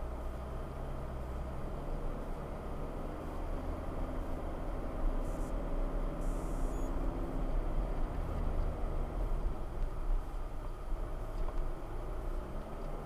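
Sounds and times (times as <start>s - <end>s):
car engine and road rumble: 0.0s - 13.0s.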